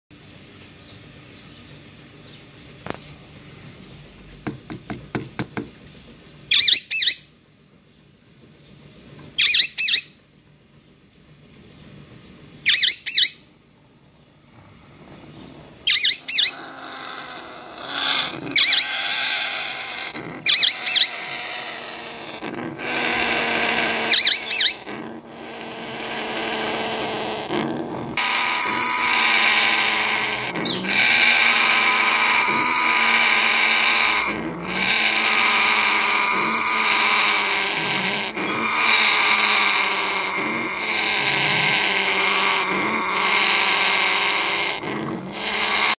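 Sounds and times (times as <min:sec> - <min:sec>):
parrot rasping call: 0:06.5 - 0:07.2, 0:09.4 - 0:10.1, 0:12.7 - 0:13.4, 0:15.8 - 0:45.9
parrot sharp calls: 0:06.5 - 0:07.3, 0:09.4 - 0:10.2, 0:12.6 - 0:13.5, 0:15.8 - 0:27.5, 0:28.2 - 0:45.9.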